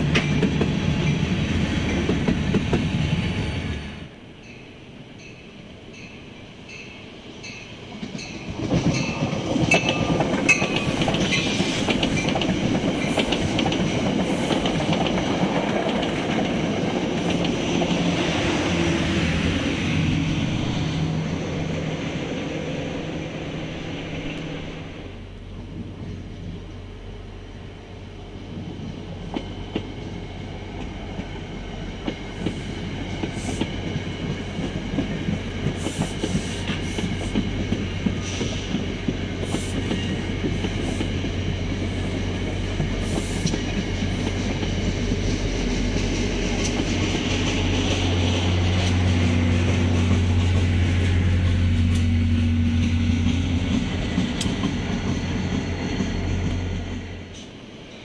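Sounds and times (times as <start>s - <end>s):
low train drone: 0.0s - 58.0s
train wheels clicking over rails: 8.0s - 19.9s, 28.6s - 57.6s.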